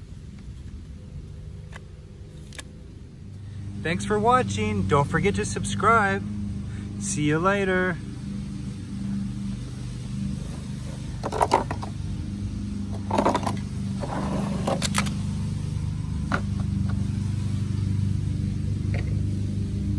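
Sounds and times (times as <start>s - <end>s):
steady low hum: 0.0s - 19.9s
plastic toys clattering: 11.2s - 11.9s, 13.0s - 13.6s.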